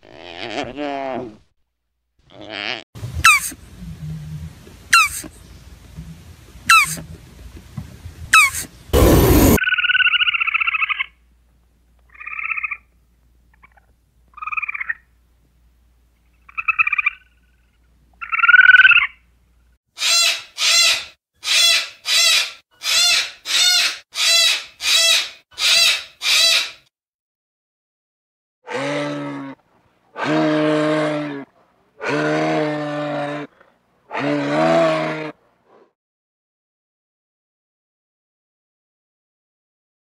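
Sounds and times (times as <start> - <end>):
cockatoo screeching: 6.7 - 7.0, 8.4 - 9.6, 20.0 - 26.8
squirrel chirping calls: 6.7 - 7.0.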